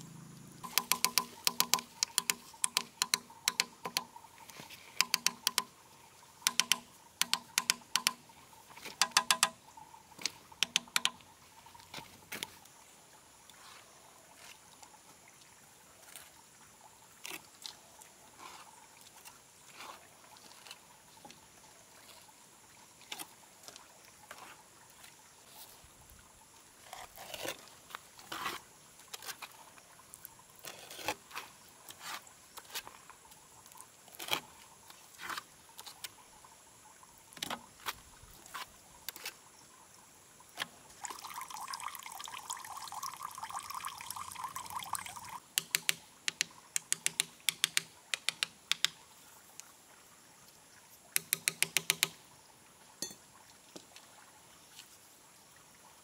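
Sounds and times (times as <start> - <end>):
trowel scraping wet mortar: 26.9 - 28.6, 30.6 - 32.9.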